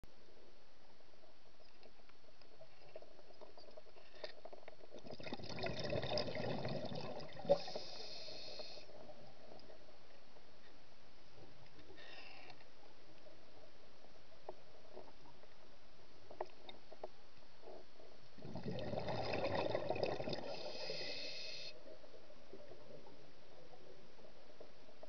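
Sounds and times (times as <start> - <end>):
bubbling and rumbling: 0.0 - 25.0
faint clicks: 1.6 - 5.0
underwater hiss: 7.4 - 9.0, 20.3 - 21.9.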